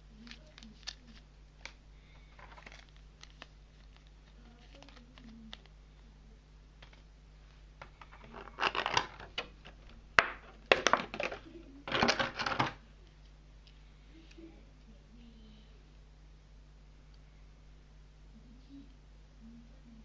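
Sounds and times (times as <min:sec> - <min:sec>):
plastic packaging crinkling: 0:00.1 - 0:05.8, 0:07.8 - 0:12.8.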